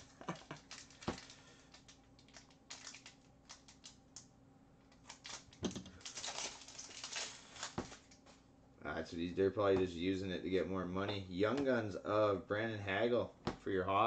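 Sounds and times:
foil wrapper crinkling: 0.2 - 4.1, 4.9 - 8.3.

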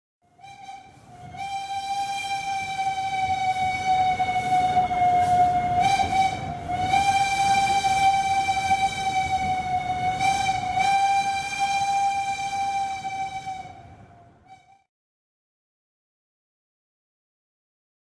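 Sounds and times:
low train rumble: 0.2 - 14.8
locomotive air horn blast: 0.3 - 14.8.

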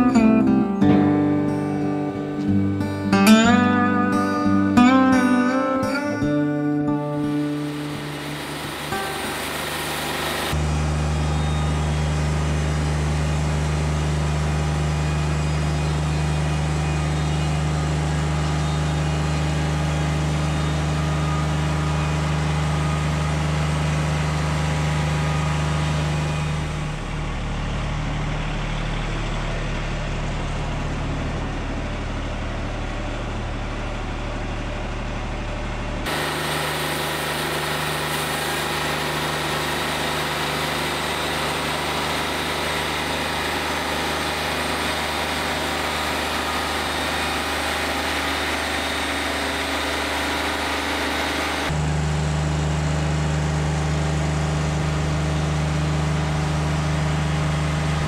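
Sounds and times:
steady machine note: 0.0 - 52.8
band sawmill sawing log: 7.2 - 11.2, 36.1 - 52.4.

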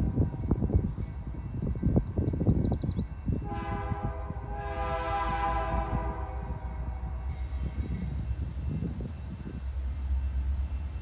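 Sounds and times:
locomotive air horn blast: 3.4 - 7.3.

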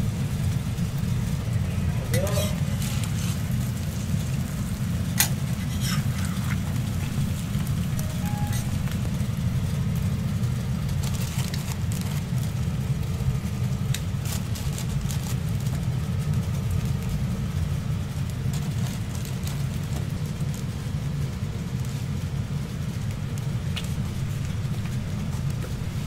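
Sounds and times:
kitchen machinery rumbling: 0.0 - 15.5.

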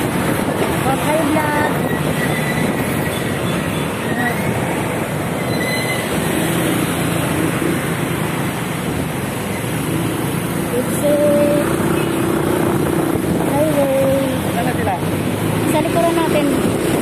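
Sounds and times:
heavy road traffic rumble: 0.0 - 17.0
faint high squeals: 5.4 - 6.2.

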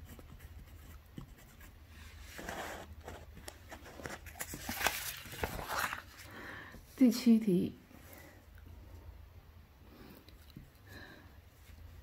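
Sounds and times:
paper rustling on a desk: 2.0 - 6.3.

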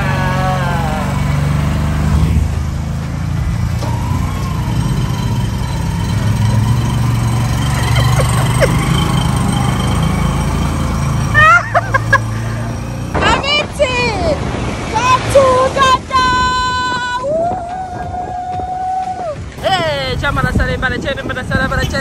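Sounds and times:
motorcycle engines running: 0.0 - 13.7, 19.5 - 22.0.

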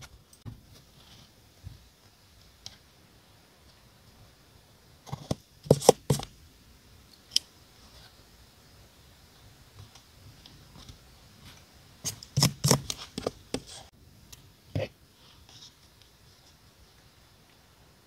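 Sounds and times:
scissors snipping paper: 12.1 - 13.8.

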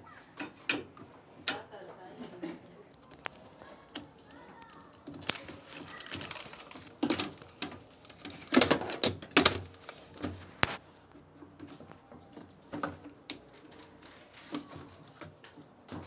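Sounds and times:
plastic clicks and knocks: 2.5 - 10.7.

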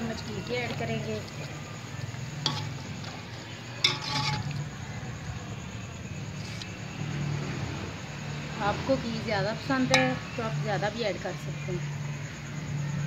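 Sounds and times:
metal spoon stirring in pot: 0.0 - 5.2, 9.8 - 10.5
spoon scraping pot: 2.3 - 4.7
spoon clinking against pot: 2.4 - 3.2, 3.8 - 4.6, 9.9 - 10.4.

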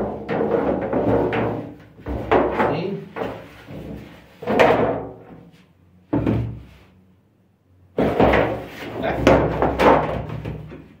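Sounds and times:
hard knocks and thuds: 0.0 - 5.3, 6.1 - 6.6, 8.0 - 10.8.

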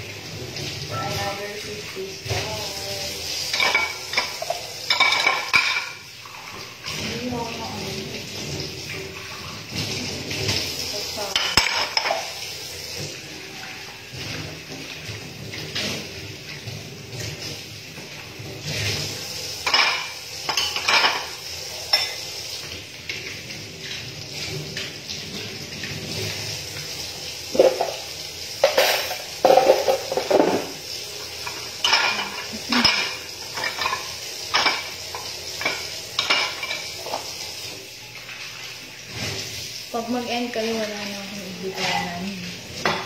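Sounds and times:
dishes and cutlery clinking: 3.5 - 7.1, 8.4 - 13.1, 19.6 - 22.3, 27.5 - 37.4, 42.8 - 43.0.

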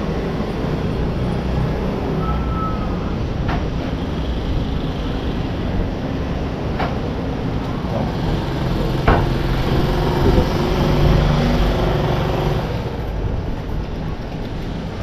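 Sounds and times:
vehicle engine and road noise: 0.0 - 15.0
humming engine note: 7.6 - 13.1.

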